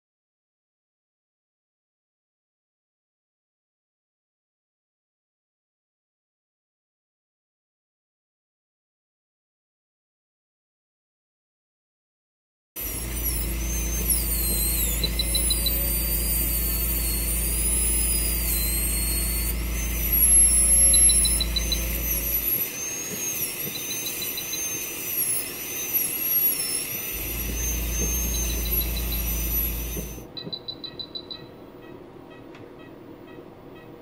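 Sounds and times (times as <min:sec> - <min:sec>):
low hum: 0:12.8 - 0:25.6, 0:26.7 - 0:30.3
dental drill whining: 0:12.8 - 0:31.4
rapid high beeps: 0:12.8 - 0:33.9.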